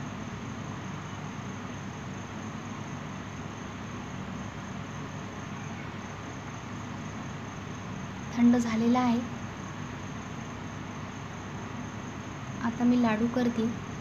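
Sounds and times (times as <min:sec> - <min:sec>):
background hiss: 0:00.0 - 0:14.0
thin high-pitched whine: 0:04.8 - 0:06.9.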